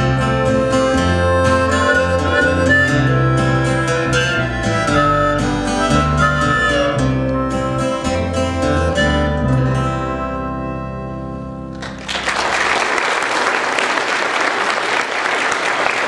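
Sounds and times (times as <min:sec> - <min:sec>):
harmonica: 0:00.0 - 0:11.7
pedal steel guitar: 0:00.0 - 0:12.0
acoustic guitars: 0:00.0 - 0:12.2
audience applause: 0:11.8 - 0:16.0.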